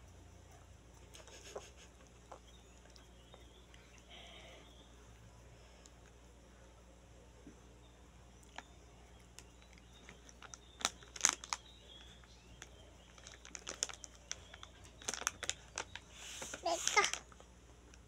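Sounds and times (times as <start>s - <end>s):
plastic snack bag crinkling: 9.4s - 17.4s.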